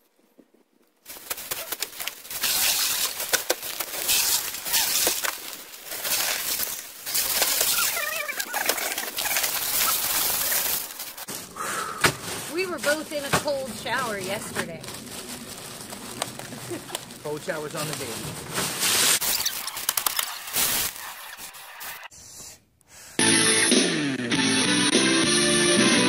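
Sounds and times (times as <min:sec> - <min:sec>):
plastic bags crinkling: 0:01.0 - 0:11.5, 0:12.2 - 0:21.9
ice cubes clattering: 0:02.3 - 0:11.3.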